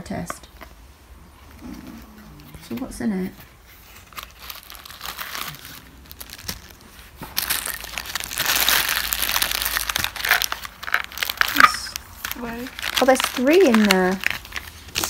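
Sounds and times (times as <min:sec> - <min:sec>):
plastic bags crinkling: 0:01.6 - 0:15.0.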